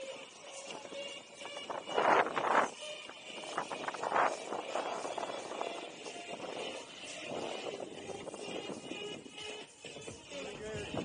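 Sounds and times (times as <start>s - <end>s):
wind buffeting microphone: 0.7s - 11.0s.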